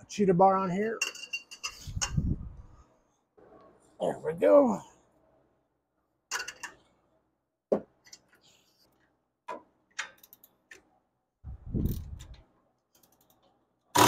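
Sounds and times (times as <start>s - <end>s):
metallic clicks of socket wrench: 11.9s - 13.5s.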